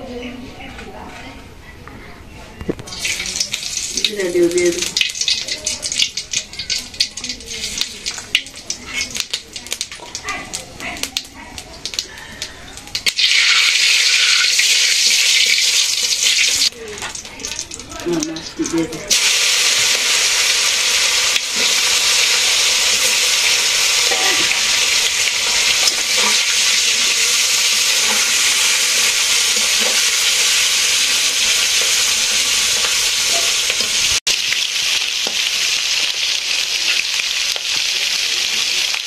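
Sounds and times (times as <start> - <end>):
fish sizzling in hot oil: 2.9 - 39.0
spatula stirring in wok: 21.1 - 34.2.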